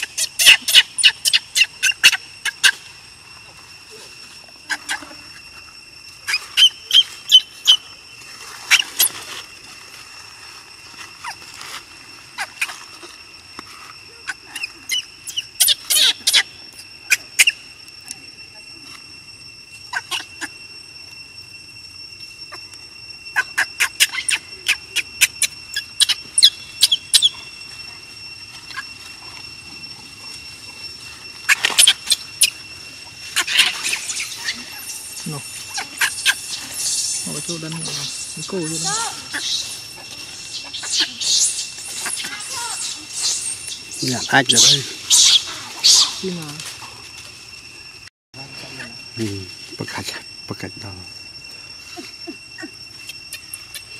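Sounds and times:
infant monkey squeaking cries: 0.0s - 2.9s, 4.6s - 5.6s, 6.2s - 7.9s, 8.6s - 9.3s, 11.2s - 11.5s, 12.4s - 13.1s, 14.1s - 17.7s, 19.9s - 20.6s, 23.3s - 27.5s, 28.6s - 29.0s, 31.4s - 32.6s, 33.2s - 46.5s, 51.8s - 53.9s
steady high drone: 0.0s - 53.9s.

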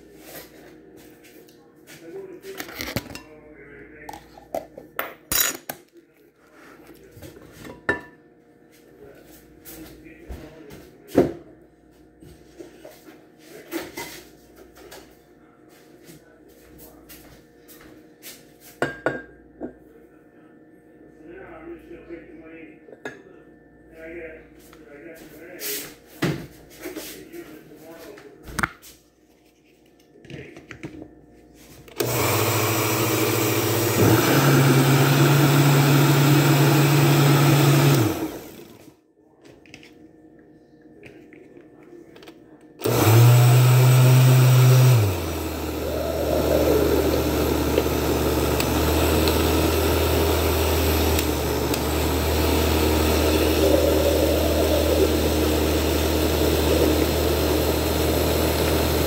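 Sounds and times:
blender blending: 31.9s - 38.8s, 42.8s - 59.0s.

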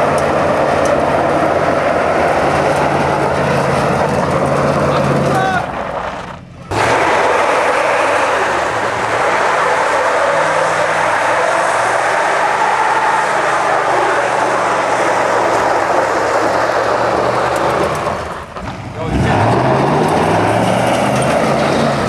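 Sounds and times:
tyres spinning: 0.0s - 22.0s
engine revving high: 6.7s - 22.0s.

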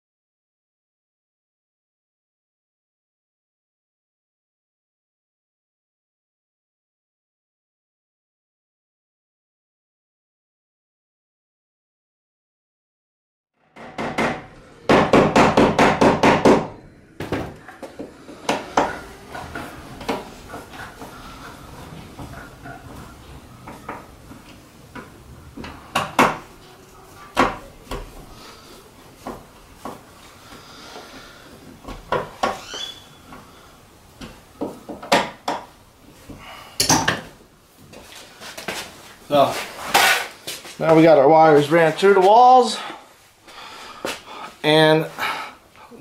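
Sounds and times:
hand tool striking a wall: 13.8s - 17.5s
high squeak: 32.6s - 33.3s.

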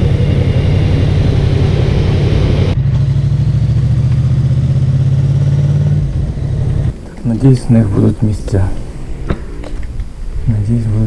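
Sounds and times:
rushing noise: 0.0s - 2.9s
motorcycle engine running: 0.0s - 7.9s.

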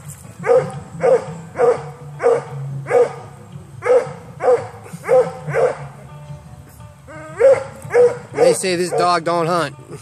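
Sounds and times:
dog barking: 0.4s - 5.9s, 7.2s - 9.2s.

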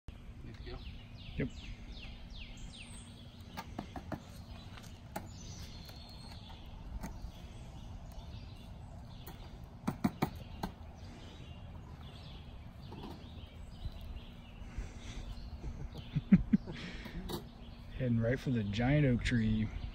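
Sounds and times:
low outdoor noise: 0.1s - 19.9s
songbirds chirping: 0.1s - 19.9s.

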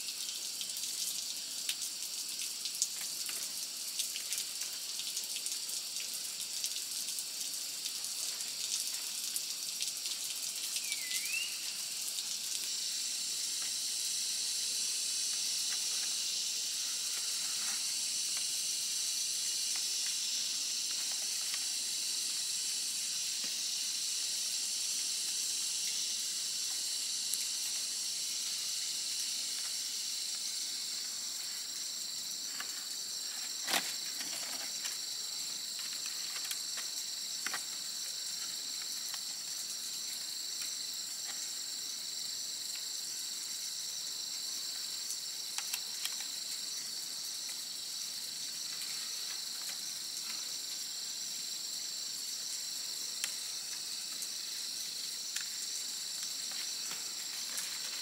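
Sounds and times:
high-pitched insect chorus: 0.0s - 58.0s
bamboo strips clicking and rustling: 32.5s - 35.0s, 35.7s - 37.8s, 45.5s - 46.4s.

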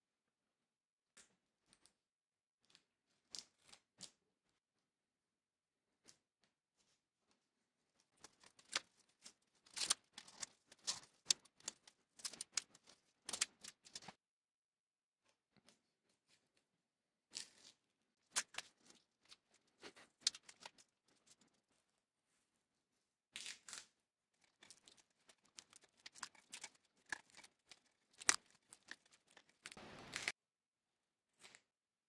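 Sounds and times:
tape rustling and crinkling: 8.2s - 14.2s, 24.4s - 30.4s
tape tearing: 26.2s - 30.3s.

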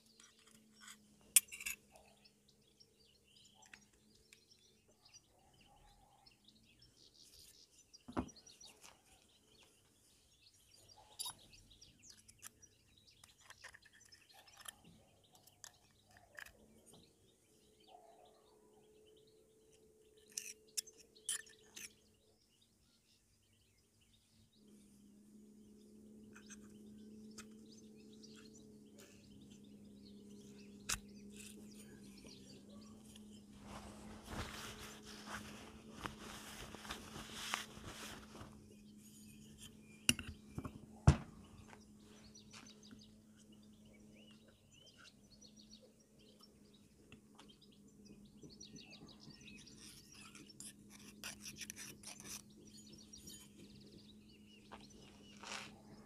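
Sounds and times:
faint bird chirps: 0.0s - 56.0s
faint steady hum: 19.2s - 56.0s.

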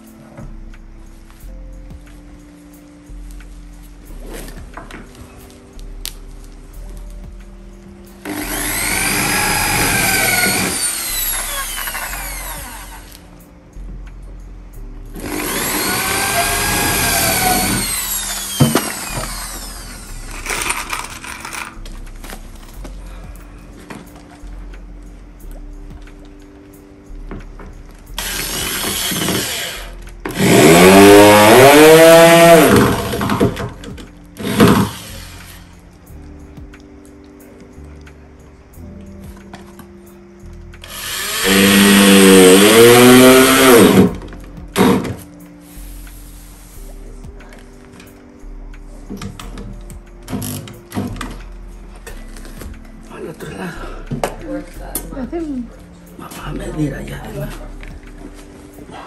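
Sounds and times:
electric drill running into wood: 8.2s - 13.2s, 15.2s - 21.5s, 28.2s - 35.6s, 40.8s - 44.2s.

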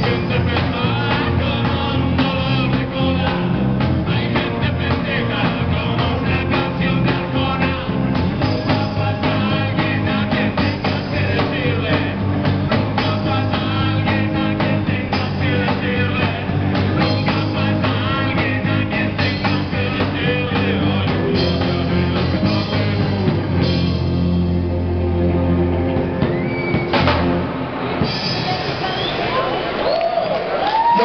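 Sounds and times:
group vocals: 0.0s - 23.8s
electric and acoustic guitars: 0.0s - 28.6s
drum kit: 0.0s - 29.6s.

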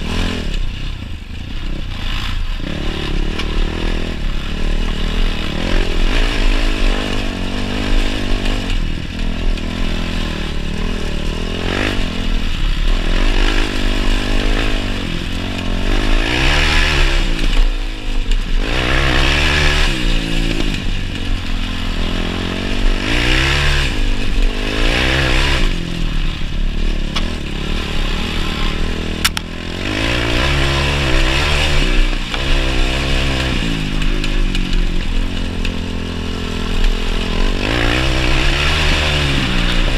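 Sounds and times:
quad bike engine revving: 0.0s - 39.9s.

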